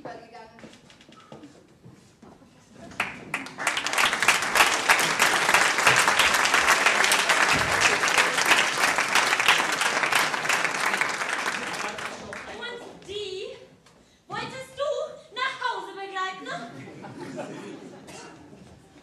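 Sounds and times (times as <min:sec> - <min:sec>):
audience applauding: 0:02.9 - 0:12.7.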